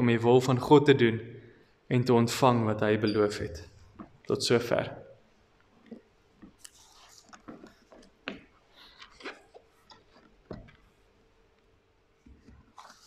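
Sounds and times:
faint rustles and light knocks: 0:05.6 - 0:11.2, 0:12.2 - 0:13.0.

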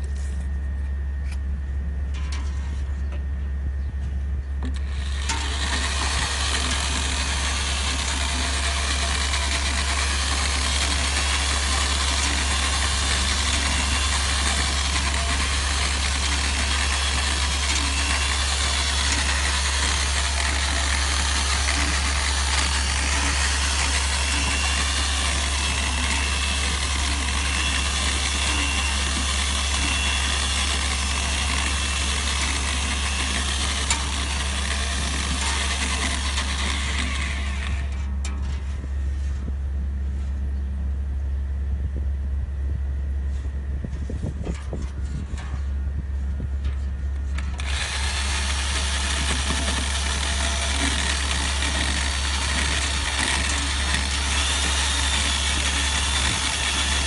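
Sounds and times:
electric drill mixer whining: 0:04.6 - 0:38.0, 0:47.4 - 0:57.0
concrete mix churning in bucket: 0:05.3 - 0:38.0, 0:47.6 - 0:57.0.

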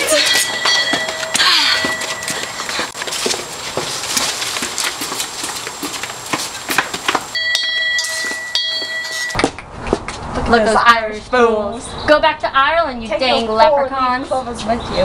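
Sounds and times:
steady high-pitched tone: 0:00.0 - 0:03.0, 0:07.4 - 0:09.4
footsteps on concrete: 0:00.0 - 0:10.4.

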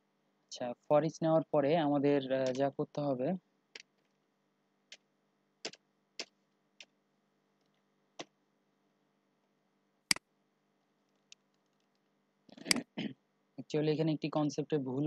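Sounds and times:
keyboard and mouse clicks: 0:02.4 - 0:02.7, 0:03.7 - 0:04.2, 0:05.6 - 0:07.0, 0:11.2 - 0:12.9.

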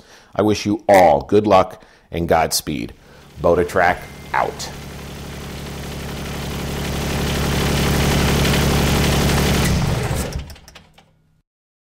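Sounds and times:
engine running with low pulsing: 0:03.0 - 0:10.7.

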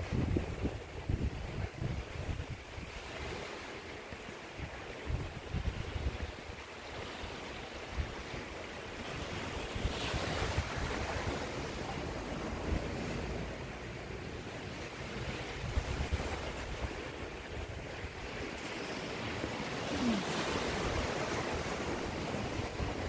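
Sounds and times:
sea surf washing on beach: 0:00.0 - 0:23.0
wind buffeting microphone: 0:00.0 - 0:23.0.

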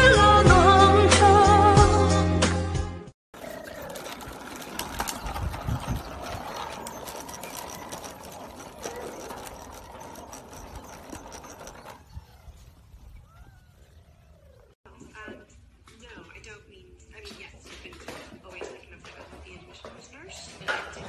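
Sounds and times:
plastic wheels rattling on concrete: 0:03.3 - 0:14.6.

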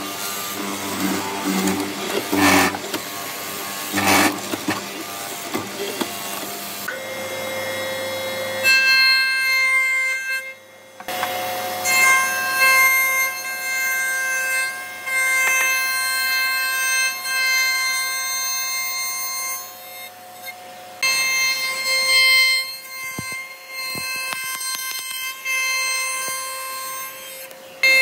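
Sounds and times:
mortiser motor running: 0:00.0 - 0:07.7.

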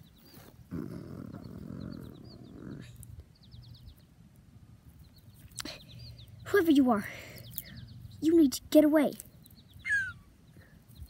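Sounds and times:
child growling: 0:00.7 - 0:03.0
high bird chirps: 0:09.3 - 0:11.0.

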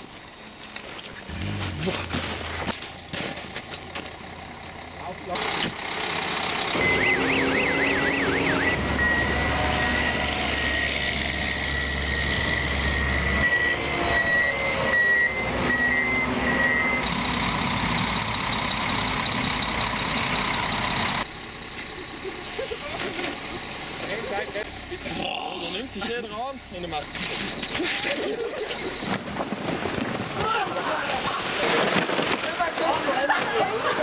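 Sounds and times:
snow groomer engine hum: 0:00.0 - 0:34.0
steady high tone: 0:06.7 - 0:22.5
repeated warning beeps: 0:06.7 - 0:22.6
warbling warning tone: 0:06.8 - 0:17.4.

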